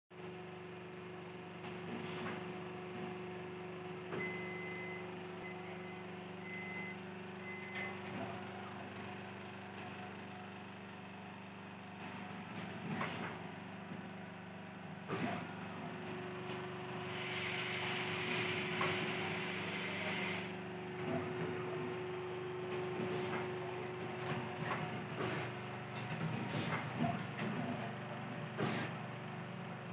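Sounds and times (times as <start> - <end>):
steady machine hum: 2.8 - 29.9
hiss: 28.6 - 28.9.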